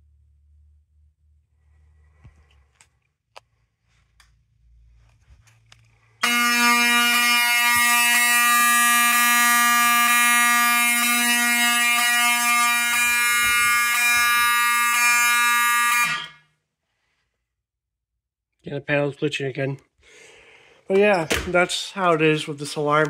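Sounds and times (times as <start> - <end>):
fire alarm horn buzzing: 6.2 - 16.6.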